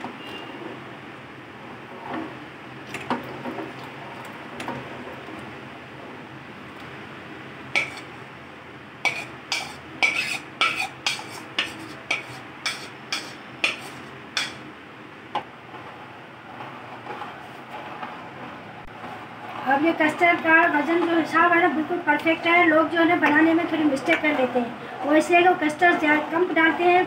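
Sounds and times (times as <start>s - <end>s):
spoon scraping and clinking in pan: 7.8s - 8.1s, 9.1s - 14.6s.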